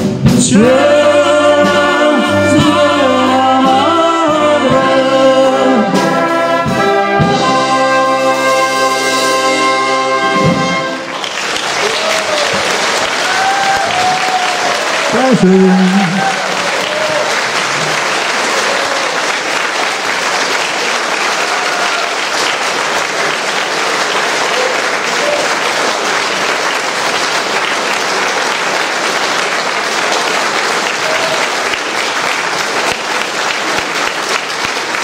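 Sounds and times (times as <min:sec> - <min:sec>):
audience applause: 0:09.6 - 0:35.0.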